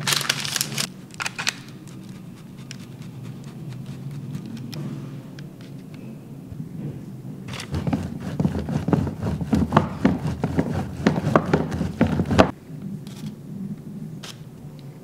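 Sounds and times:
cheese grated on box grater: 7.5s - 12.5s.

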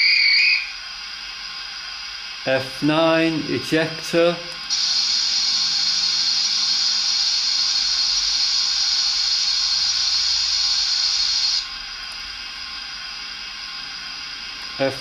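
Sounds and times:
steam locomotive hiss from speaker: 0.0s - 15.0s.

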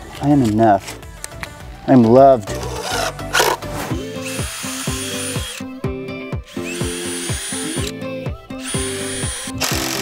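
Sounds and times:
background music: 0.0s - 10.0s
cordless drill boring into wood: 4.2s - 5.7s, 6.5s - 8.0s, 8.6s - 10.0s.

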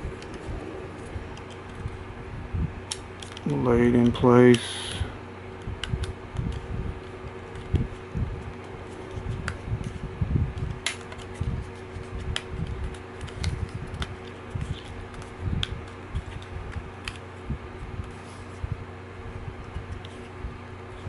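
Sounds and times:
low handling rumble: 0.0s - 4.3s
steady hum: 0.0s - 21.0s.

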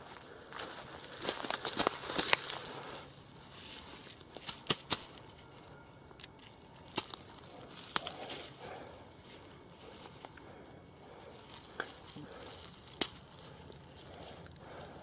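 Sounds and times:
dry grass and pine needles crackling: 0.0s - 15.0s.

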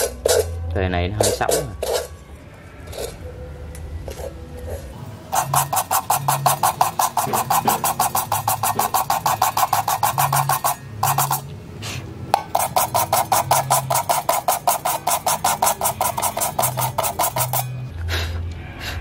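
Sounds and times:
sandpaper rasping on metal pot: 1.2s - 2.2s, 4.2s - 11.4s, 12.5s - 17.8s.

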